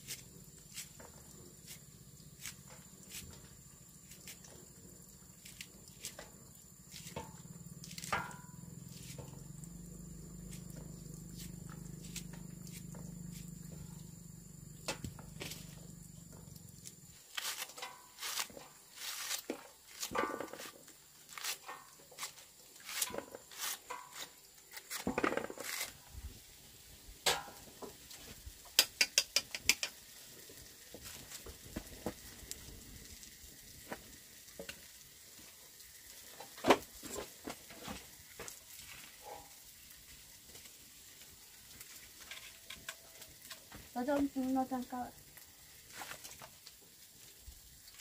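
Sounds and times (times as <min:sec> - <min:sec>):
utensil scraping in a pan: 0:00.0 - 0:04.5, 0:05.5 - 0:09.4, 0:17.2 - 0:26.0
faint frying sizzle: 0:00.0 - 0:24.7, 0:26.0 - 0:48.0.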